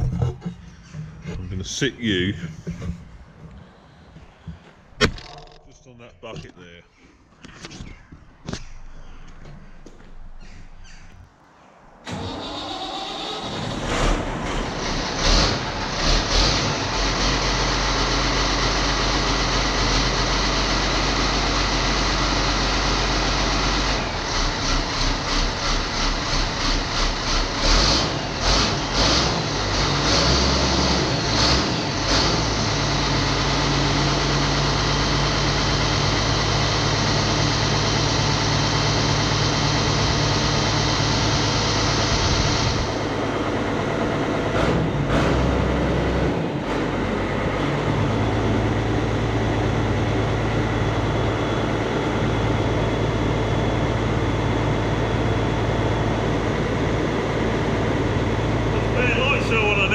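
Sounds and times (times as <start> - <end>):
diesel engine running unevenly: 0.0 - 5.0, 12.1 - 59.9
tractor engine cranking: 0.0 - 6.7, 12.0 - 52.7.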